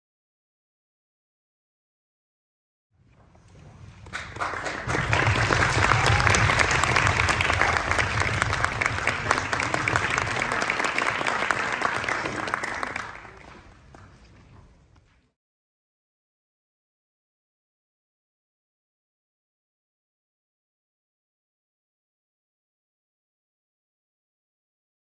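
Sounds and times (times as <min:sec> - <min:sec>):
audience applauding: 0:04.0 - 0:14.2.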